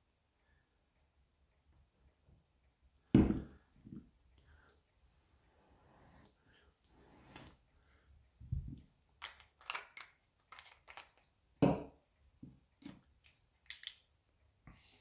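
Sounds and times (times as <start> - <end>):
objects handled on a tabletop: 8.4 - 14.1.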